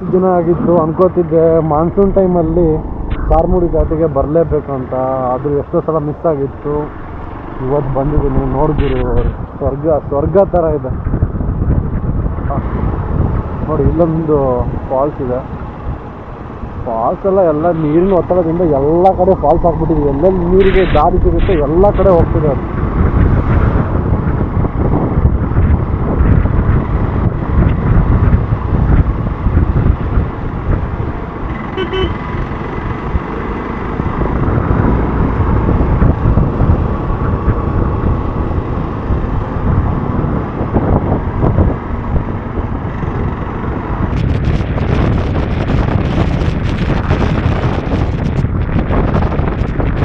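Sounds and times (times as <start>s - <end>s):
motorcycle engine rumbling: 0.0s - 50.0s
wind noise on microphone: 0.0s - 50.0s
motorcycle horn toot: 31.7s - 32.2s.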